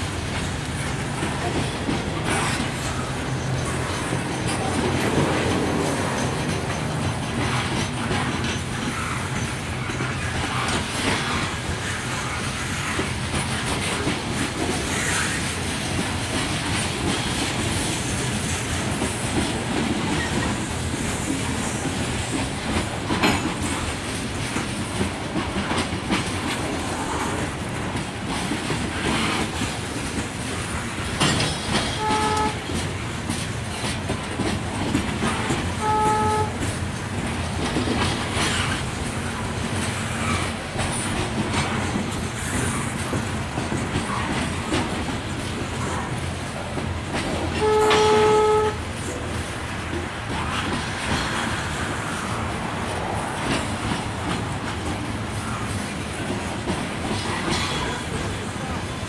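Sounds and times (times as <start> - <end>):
freight train rumbling past: 0.0 - 59.0
steel wheels clacking over rail joints: 0.0 - 59.0
train horn toot: 31.9 - 32.8, 35.7 - 36.7, 47.5 - 48.8.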